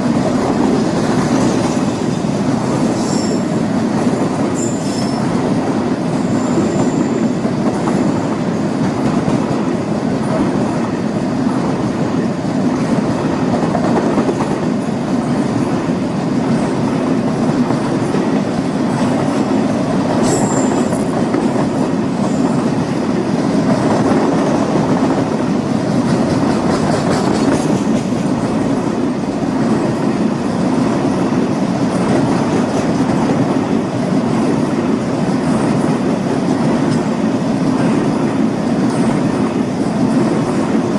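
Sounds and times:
freight train wheels rumbling on rail: 0.0s - 40.9s
high squeal: 4.6s - 5.4s.

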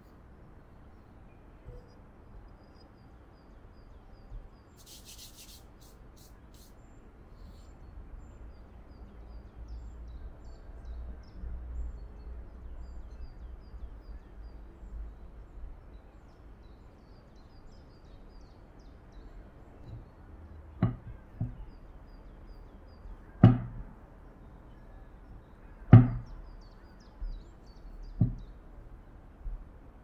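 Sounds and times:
faint high chirps: 0.9s - 7.8s
glass bowl knocking on countertop: 20.8s - 21.6s, 23.4s - 23.8s, 26.0s - 26.2s, 28.2s - 28.4s.

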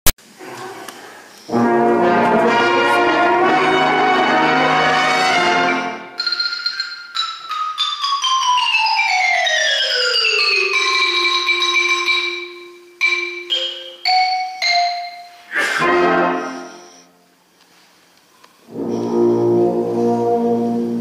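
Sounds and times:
brass band chord: 1.5s - 6.1s, 15.8s - 16.8s, 18.7s - 21.0s
xylophone falling notes: 5.7s - 15.6s.

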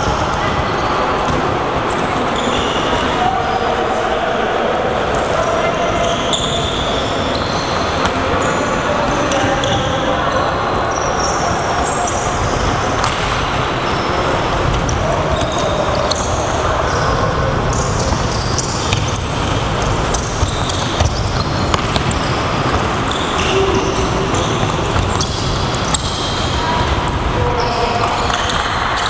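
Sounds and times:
balls bouncing on hall floor: 6.0s - 10.2s, 10.9s - 29.0s.

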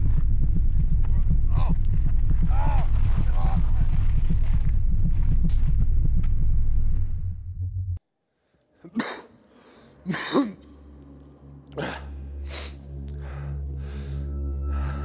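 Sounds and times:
low rumble: 0.0s - 8.0s
person coughing: 8.9s - 9.4s, 10.0s - 10.8s
person breathing: 9.4s - 10.1s, 11.8s - 15.0s
low musical drone: 10.8s - 15.0s.

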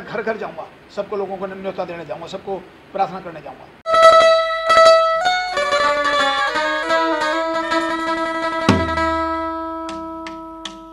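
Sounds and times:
short pitched notes: 3.9s - 10.3s.

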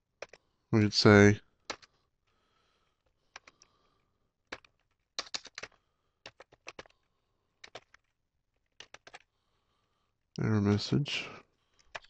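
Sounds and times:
faint keyboard typing: 0.2s - 0.5s, 1.6s - 2.0s, 3.1s - 9.3s, 11.6s - 12.0s.

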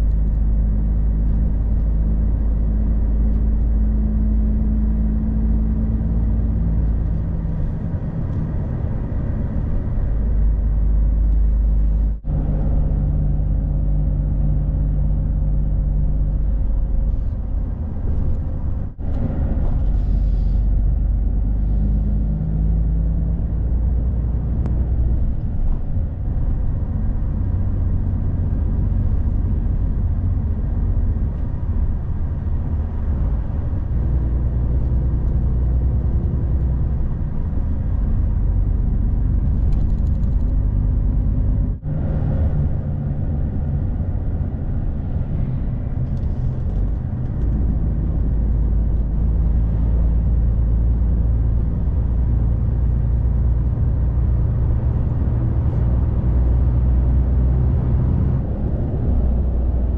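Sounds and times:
road noise: 0.0s - 59.9s
truck engine droning: 0.0s - 59.9s.

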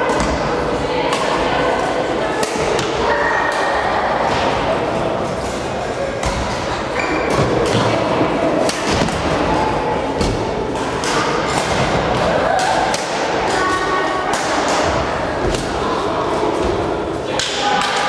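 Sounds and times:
racket hitting shuttlecock: 2.4s - 3.6s, 10.2s - 13.5s
shoe squeak: 7.0s - 7.4s.

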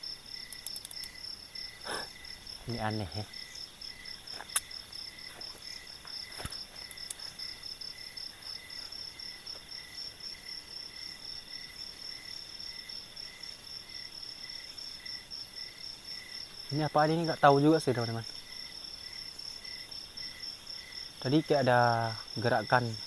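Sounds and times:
high pulsing insect trill: 0.0s - 23.0s
lower insect chirp: 0.0s - 23.0s
sharp clicks: 0.5s - 1.2s.

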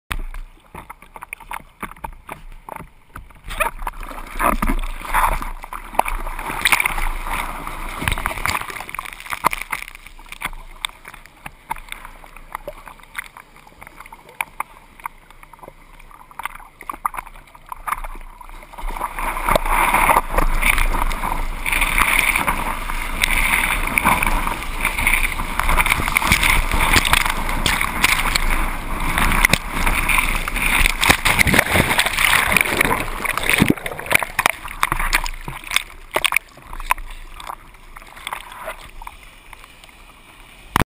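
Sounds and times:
seawater sloshing and splashing: 0.1s - 40.8s
whitewater rushing: 17.7s - 39.8s.

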